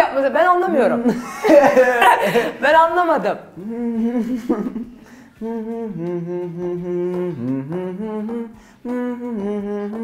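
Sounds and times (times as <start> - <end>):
man humming: 3.6 - 10.0.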